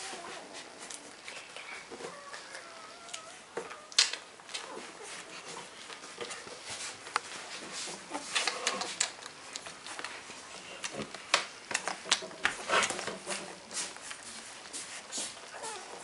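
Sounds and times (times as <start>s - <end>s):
puppies suckling: 12.8s - 16.0s.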